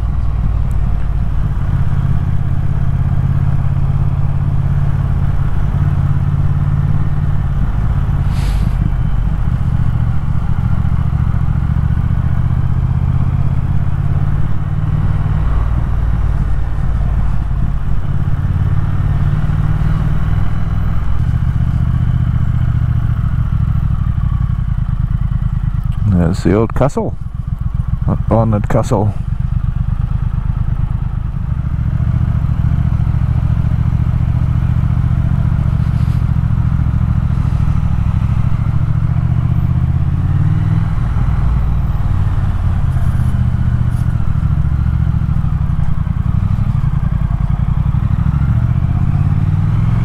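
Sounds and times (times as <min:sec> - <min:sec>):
motorcycle engine at low revs: 0:00.0 - 0:50.0
brief hiss: 0:08.2 - 0:08.8.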